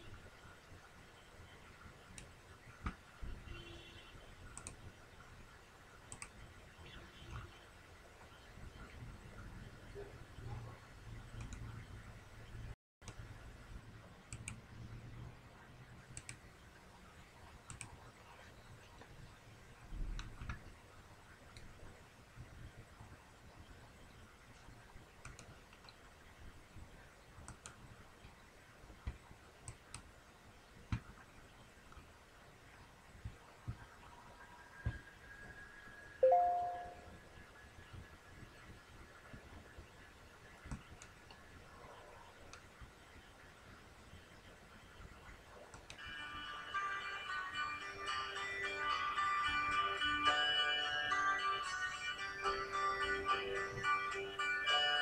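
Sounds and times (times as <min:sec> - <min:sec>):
faint room noise: 0:00.0 - 0:55.0
computer clicks: 0:04.5 - 0:04.9, 0:06.1 - 0:06.4, 0:14.3 - 0:14.6, 0:16.1 - 0:16.4, 0:17.7 - 0:18.0, 0:20.2 - 0:20.6, 0:25.2 - 0:26.0
computer mouse clicks: 0:04.5 - 0:04.9, 0:06.1 - 0:06.4, 0:11.4 - 0:11.7, 0:14.3 - 0:14.6, 0:16.1 - 0:16.4, 0:17.7 - 0:18.0, 0:20.2 - 0:20.6, 0:25.2 - 0:26.0, 0:27.4 - 0:28.4, 0:29.0 - 0:30.1, 0:40.6 - 0:41.4, 0:45.7 - 0:46.0.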